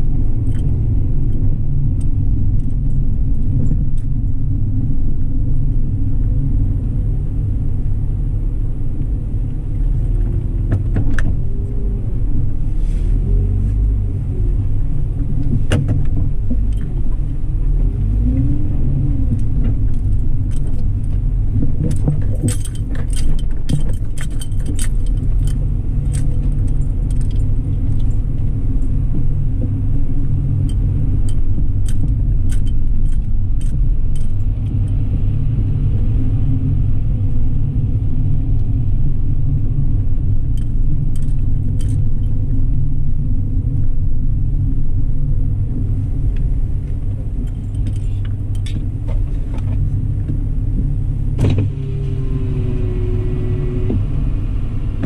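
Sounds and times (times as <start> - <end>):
car road and engine rumble: 0.0 - 55.0
light clicks and rattles: 19.3 - 35.0, 40.2 - 42.5, 45.8 - 51.7.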